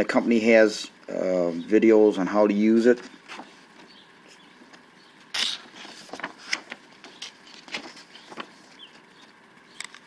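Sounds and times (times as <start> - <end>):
paper pages rustling: 3.0 - 3.9, 5.5 - 9.4
paper crackling: 5.7 - 9.4.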